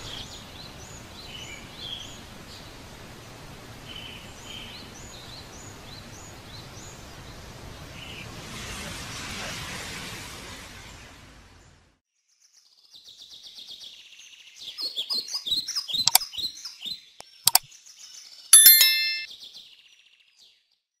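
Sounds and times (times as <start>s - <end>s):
sharp clicks: 17.2s - 17.7s
bright bell-like ding: 18.6s - 19.3s.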